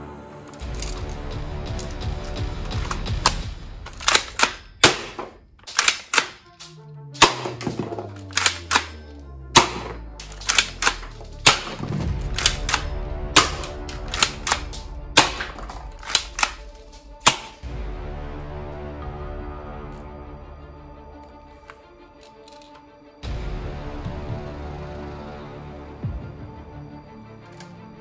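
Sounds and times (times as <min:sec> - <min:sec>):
background music: 0:00.0 - 0:28.0
toy gun shots: 0:02.8 - 0:17.6.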